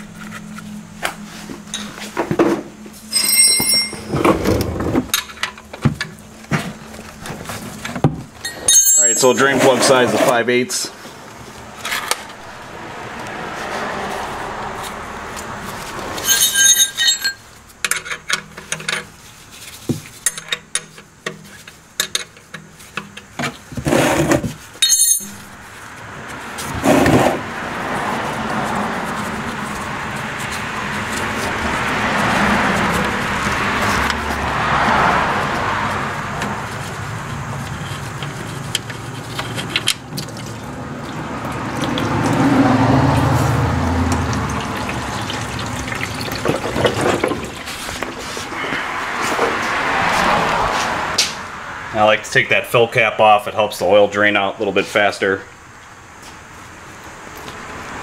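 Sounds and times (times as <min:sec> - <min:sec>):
metal clicks and clinks: 0:03.1 - 0:04.2, 0:08.4 - 0:09.4, 0:16.2 - 0:19.1, 0:24.8 - 0:25.4.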